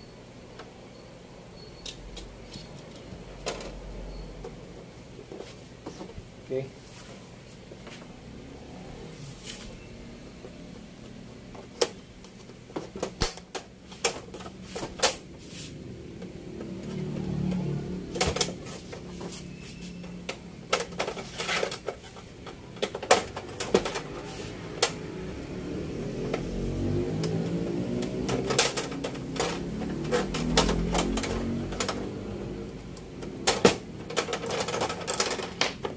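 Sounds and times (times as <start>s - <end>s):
plastic clips clicking and snapping: 28.0s - 32.2s.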